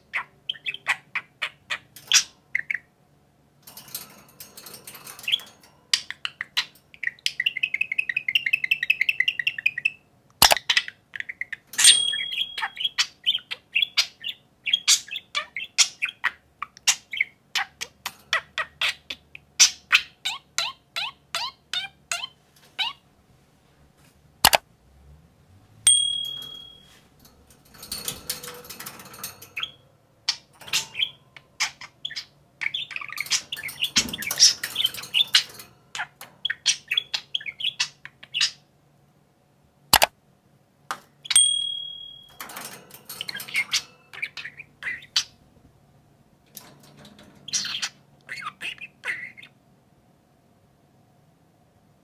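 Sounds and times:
budgerigars chirping and chattering: 0.0 - 2.9, 4.6 - 23.0, 27.8 - 38.6, 43.1 - 45.4, 47.0 - 49.6
sharp clicks: 24.4 - 24.6.

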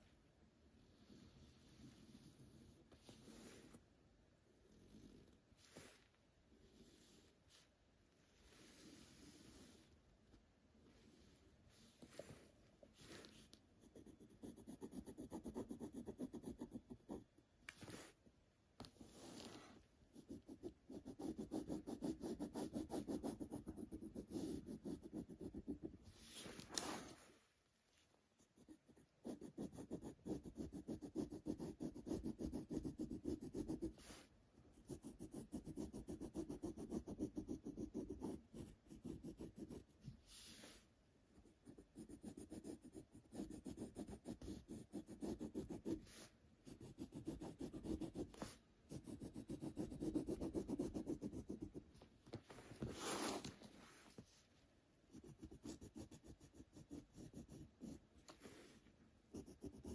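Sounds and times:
pencil scratching on paper: 13.0 - 18.2, 19.0 - 27.2, 28.4 - 40.8, 41.4 - 51.8, 55.1 - 58.6, 59.3 - 59.9
pencil scuffs: 17.7 - 18.2, 26.0 - 27.4, 47.5 - 48.6, 52.4 - 54.4.

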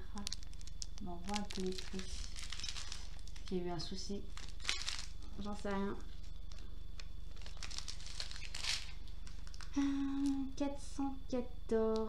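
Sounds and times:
plastic bags crinkling: 0.0 - 10.6
steady low hum: 0.0 - 12.0
woman speaking: 1.0 - 2.2, 3.5 - 4.3, 5.3 - 6.2.

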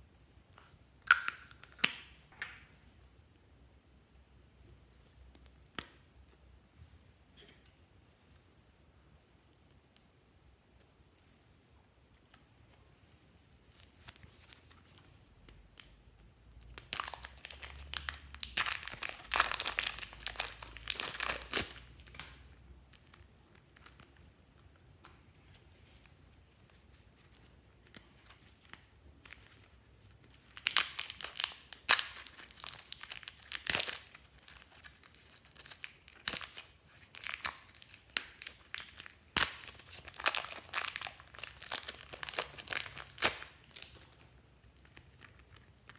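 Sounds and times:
plastic bag crinkling and tearing: 16.7 - 24.1, 30.3 - 45.9.

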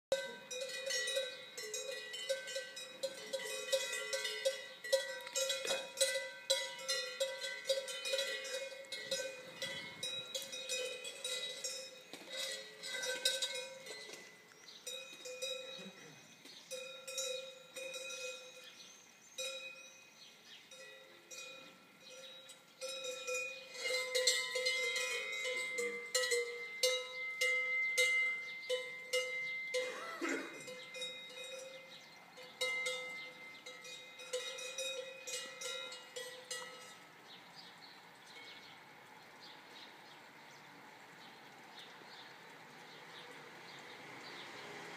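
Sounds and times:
cowbells clanking: 0.1 - 38.7.

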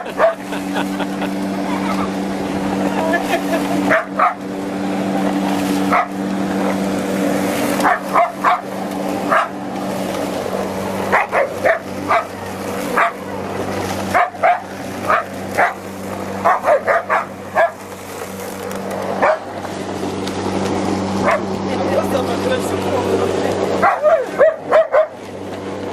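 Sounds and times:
lawn mower engine hum: 0.0 - 25.9
dog barking: 0.1 - 0.4, 3.9 - 4.4, 5.9 - 6.2, 7.8 - 8.7, 9.3 - 9.6, 11.1 - 12.3, 13.0 - 13.2, 14.1 - 15.8, 16.4 - 17.8, 19.2 - 19.5, 21.2 - 21.4, 23.8 - 25.2.

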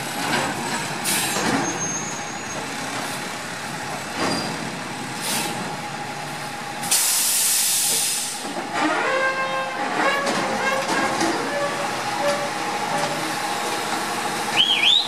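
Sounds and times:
air hissing: 6.9 - 8.4
garbage truck engine running: 9.8 - 15.0.

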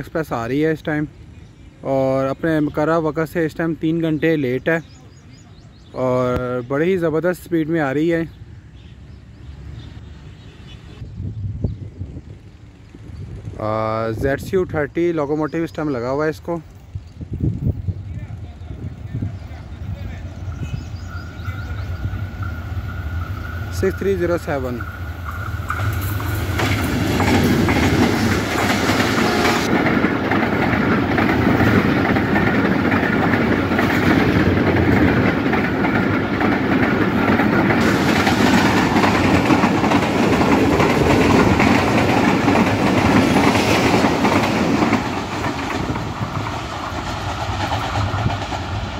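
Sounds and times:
train passing at speed: 6.2 - 15.1, 15.7 - 48.9
wheels clattering over rail joints: 21.2 - 48.9.

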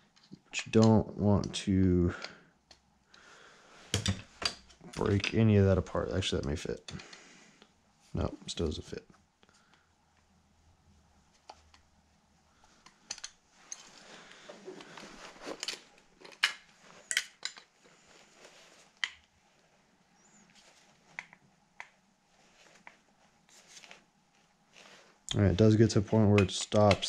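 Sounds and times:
soft rustling: 13.4 - 17.1, 17.7 - 26.9.

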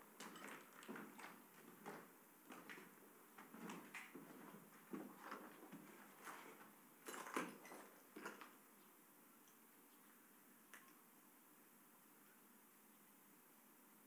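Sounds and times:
faint footsteps: 0.0 - 6.8
plastic raincoats rustling: 0.6 - 8.4.

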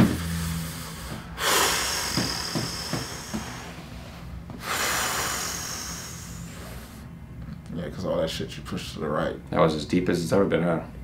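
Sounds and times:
man breathing deeply: 0.0 - 7.2.

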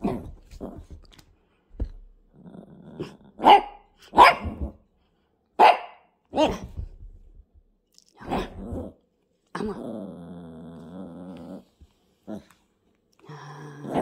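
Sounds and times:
dog growling: 2.3 - 3.4, 9.6 - 12.6
small dog barking: 3.4 - 4.7, 5.6 - 6.7.

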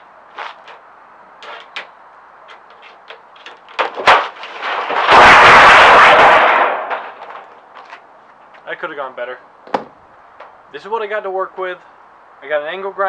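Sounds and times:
sheet metal clattering and flapping: 1.4 - 7.8.

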